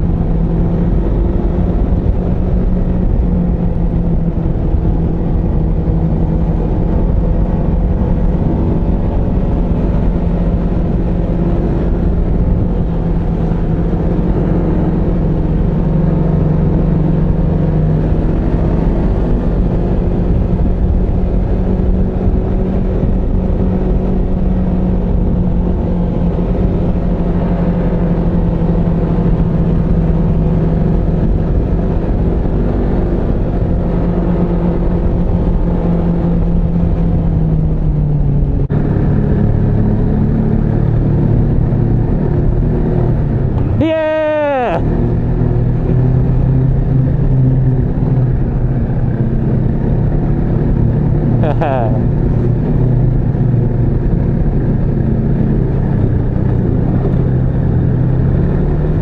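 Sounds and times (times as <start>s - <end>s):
snowmobile engine running: 38.2s - 59.0s.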